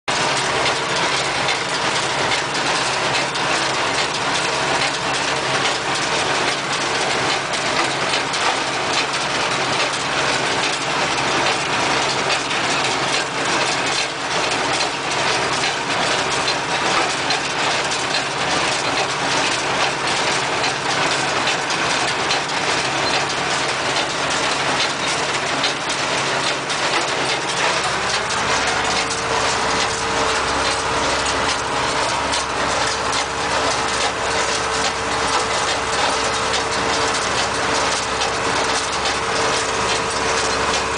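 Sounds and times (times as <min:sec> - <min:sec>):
tractor diesel engine under load: 0:00.1 - 0:40.9
baler mechanism clattering: 0:16.4 - 0:40.9.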